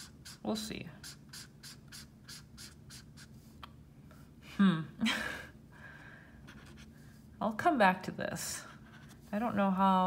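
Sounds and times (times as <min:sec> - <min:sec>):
marker scratching on paper: 0:00.0 - 0:03.6, 0:06.4 - 0:07.2, 0:08.7 - 0:09.6.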